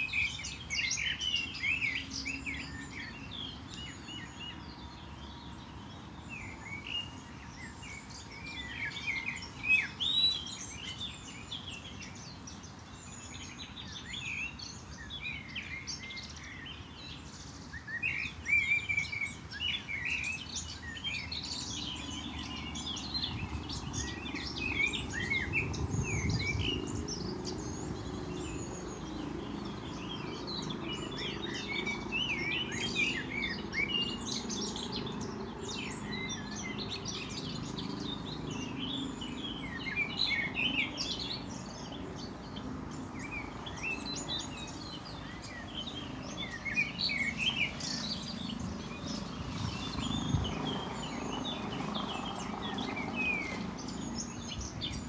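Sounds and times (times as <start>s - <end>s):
small birds chirping and singing: 0.0s - 55.0s.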